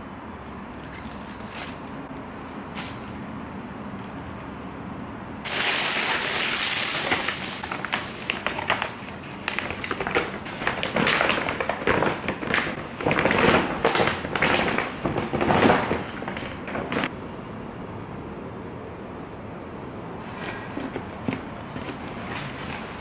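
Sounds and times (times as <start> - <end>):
fabric bag rustling and crinkling: 5.5 - 17.1.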